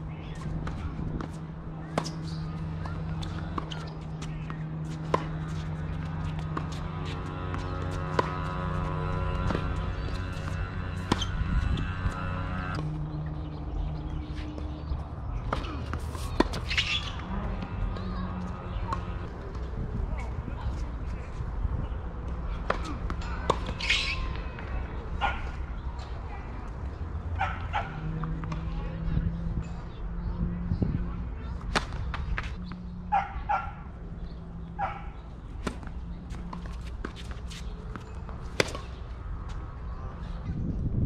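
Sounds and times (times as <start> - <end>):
dog barking: 27.4 - 28.0
tennis ball knocks: 35.6 - 39.0
tennis ball smack: 38.5 - 39.0.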